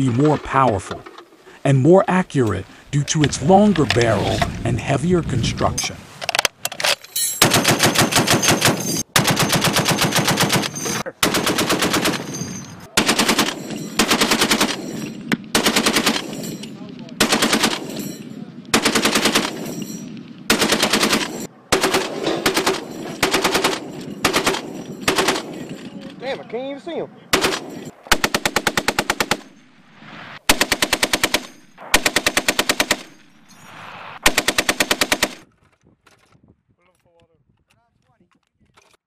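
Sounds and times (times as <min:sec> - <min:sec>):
machine guns firing in bursts: 0:07.4 - 0:26.1, 0:27.3 - 0:29.6, 0:30.4 - 0:33.4, 0:34.2 - 0:35.4.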